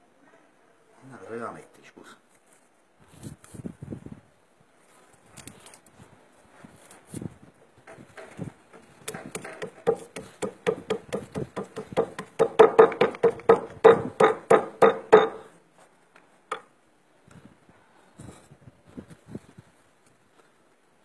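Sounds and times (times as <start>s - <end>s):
rubber mallet knocking on fat: 9.1s - 15.4s.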